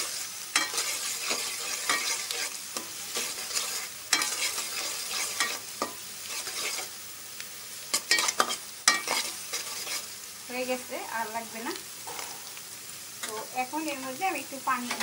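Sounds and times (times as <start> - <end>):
onions sizzling in hot oil: 0.0 - 15.0
spatula scraping and tapping pot: 0.6 - 6.9, 7.9 - 10.1.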